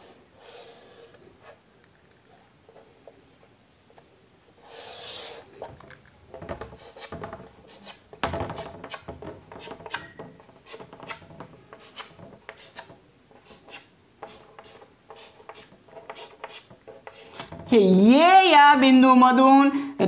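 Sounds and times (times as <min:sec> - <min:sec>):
chalk scraping on blackboard: 0:00.0 - 0:01.6, 0:04.6 - 0:05.7, 0:06.7 - 0:08.0, 0:10.6 - 0:17.6.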